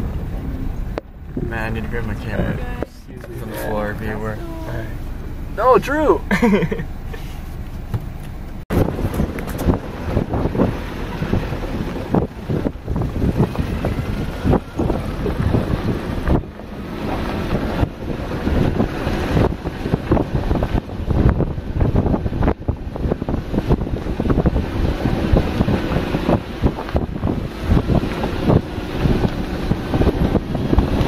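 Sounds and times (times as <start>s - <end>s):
vehicle rumbling on dirt track: 0.0s - 31.0s
wind buffeting microphone: 7.6s - 31.0s.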